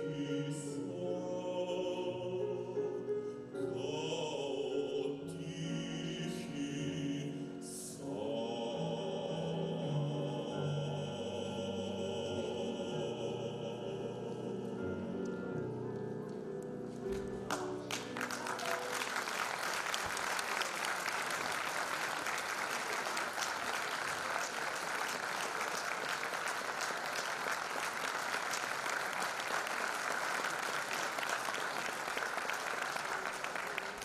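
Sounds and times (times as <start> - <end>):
baritone singing with piano: 0.0 - 16.5
audience applause: 17.5 - 34.0.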